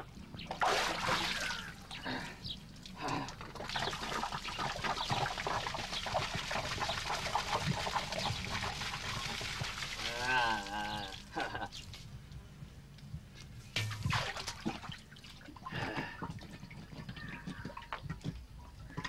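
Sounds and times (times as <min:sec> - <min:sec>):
water splashing onto stone: 0:00.4 - 0:01.8, 0:02.8 - 0:11.2, 0:13.8 - 0:15.2.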